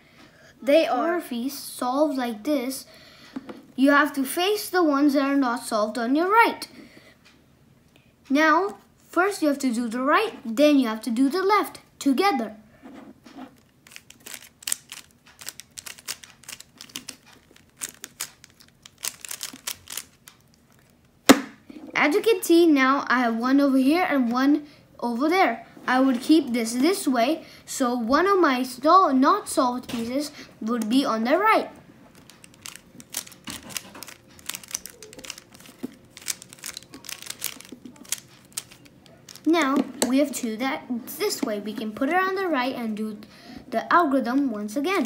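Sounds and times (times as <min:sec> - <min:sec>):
puzzle cube layers clicking: 0:13.8 - 0:20.4, 0:32.3 - 0:40.2.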